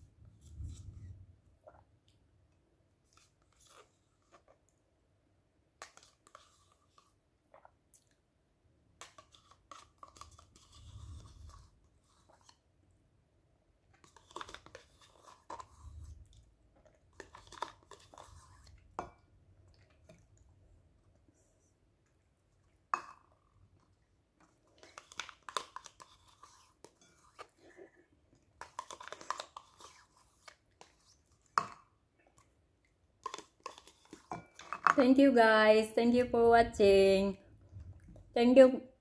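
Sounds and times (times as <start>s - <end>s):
spoon scraping yogurt cup: 3.0s - 4.6s, 5.8s - 7.2s, 9.0s - 12.7s, 13.9s - 20.3s, 24.4s - 28.0s, 28.6s - 31.8s, 33.2s - 35.0s.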